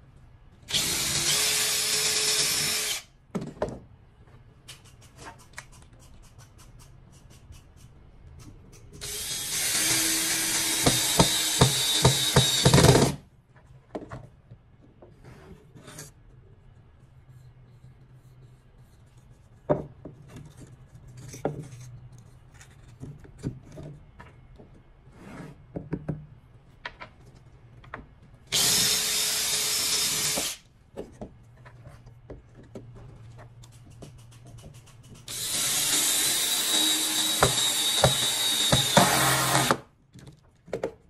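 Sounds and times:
cordless drill driving screw: 0.7 - 3.1, 9.0 - 13.2, 28.5 - 30.6, 35.3 - 39.8.

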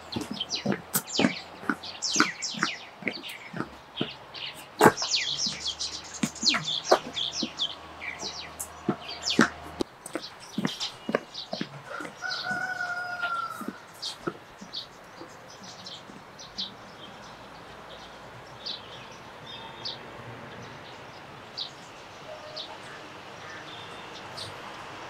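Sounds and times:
small birds chirping: 0.0 - 25.0
rooster crowing: 11.9 - 13.8.

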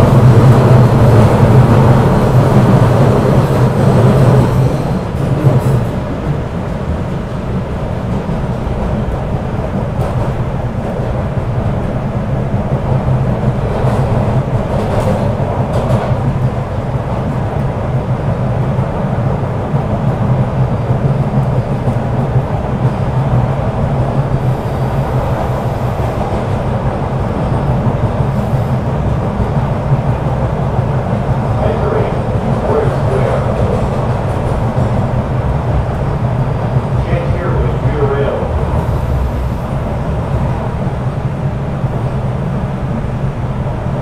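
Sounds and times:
subway train rumbling in tunnel: 0.0 - 44.0
hissing wheel and rail noise: 22.8 - 44.0.

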